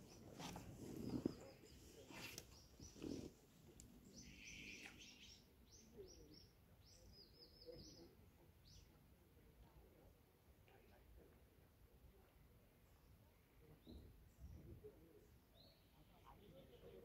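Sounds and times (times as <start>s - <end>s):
small bird chirping: 0.0s - 3.4s, 4.0s - 8.9s.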